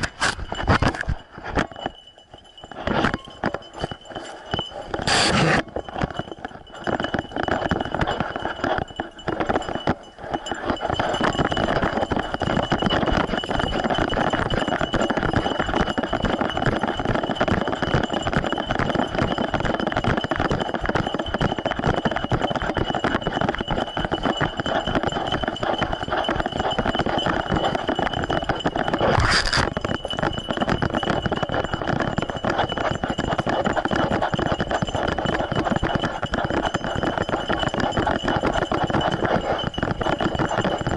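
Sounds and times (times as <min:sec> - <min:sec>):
camera jostling and rattling: 0:00.0 - 0:02.0, 0:02.8 - 0:12.7, 0:27.8 - 0:34.8.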